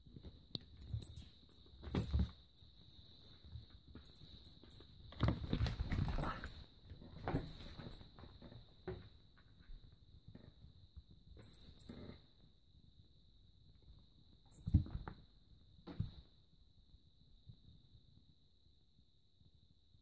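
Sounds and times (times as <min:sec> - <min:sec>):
mouse squeaking: 0:00.8 - 0:05.2, 0:06.1 - 0:06.6, 0:07.3 - 0:08.0, 0:11.4 - 0:12.0, 0:14.5 - 0:14.8, 0:15.9 - 0:16.2.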